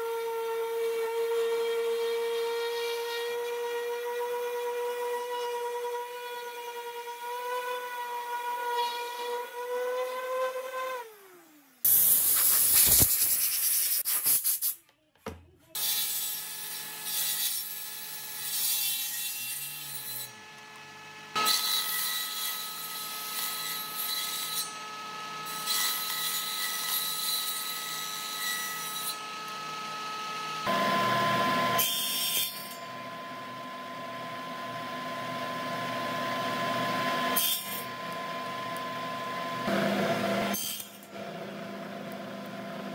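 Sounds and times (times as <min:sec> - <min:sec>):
woodshop power machines running: 0:19.9 - 0:24.0, 0:24.6 - 0:26.8, 0:27.6 - 0:42.9.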